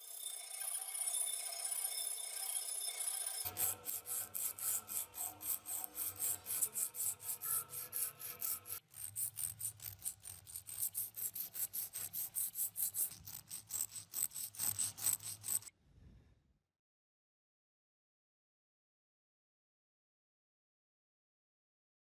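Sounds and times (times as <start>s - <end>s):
sandpaper scrubbing rusty steel: 3.4s - 15.7s.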